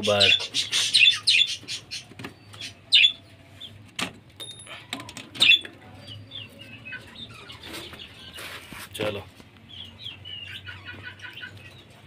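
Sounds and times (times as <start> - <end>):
high bird chirps: 0.1 - 3.8.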